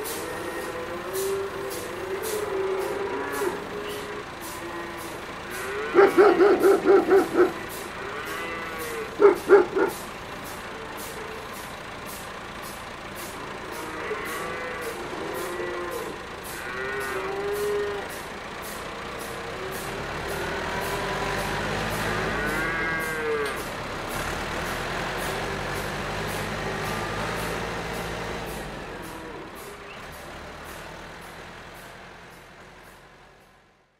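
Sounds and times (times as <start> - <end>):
cattle mooing: 0.0 - 11.5, 13.2 - 18.4, 19.7 - 23.8
low vehicle engine rumble: 0.0 - 33.9
dog barking: 6.0 - 7.6, 9.2 - 10.0.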